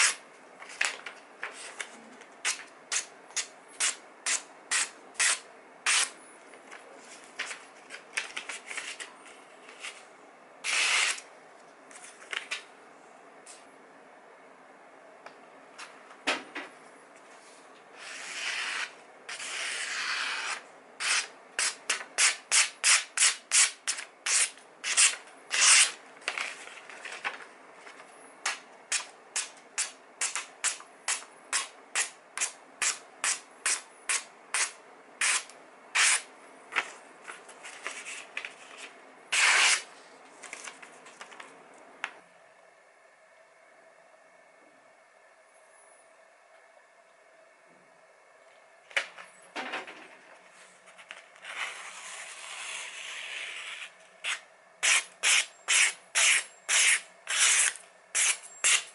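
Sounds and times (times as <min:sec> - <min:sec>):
knife slicing paper: 0:10.6 - 0:11.2, 0:18.0 - 0:26.4, 0:32.8 - 0:36.3, 0:37.7 - 0:39.9, 0:51.4 - 0:58.9.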